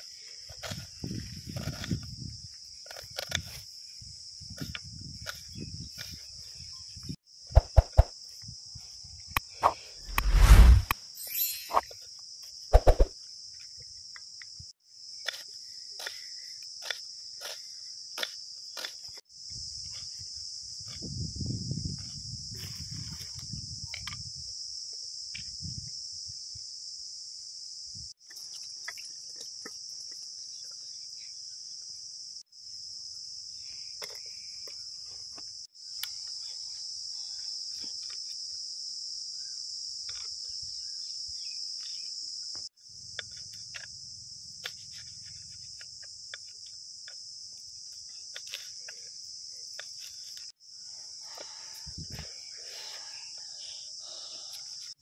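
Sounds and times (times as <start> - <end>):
insects chirring: 0.0 - 55.0.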